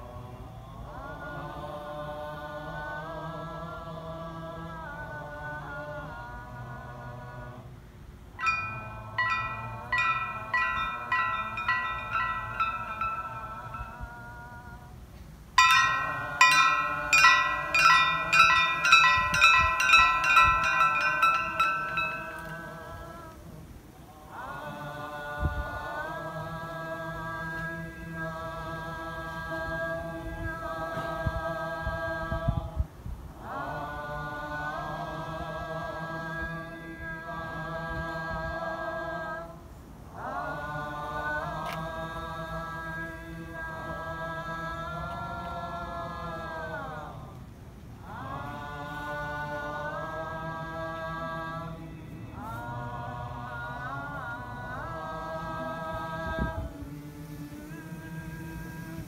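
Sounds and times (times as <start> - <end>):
temple bell ringing: 8.4 - 23.4.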